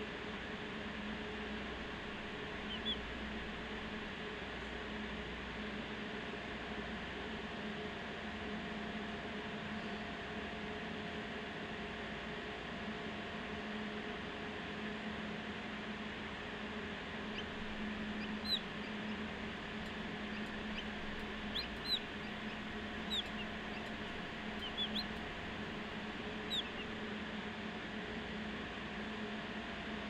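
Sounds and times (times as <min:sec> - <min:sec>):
hatcher fan hum and hiss: 0:00.0 - 0:10.6, 0:15.4 - 0:28.6
chicks peeping: 0:02.0 - 0:03.9, 0:17.3 - 0:27.0.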